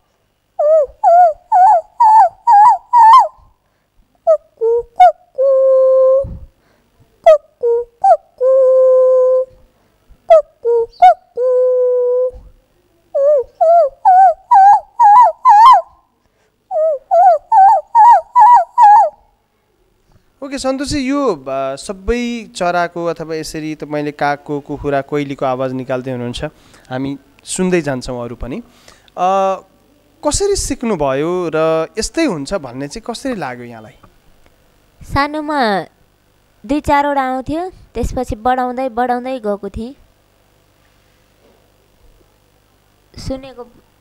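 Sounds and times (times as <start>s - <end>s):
woman imitating bird call: 0.6s - 3.4s, 4.3s - 6.4s, 7.2s - 9.6s, 10.3s - 12.5s, 13.1s - 16.0s, 16.7s - 19.2s.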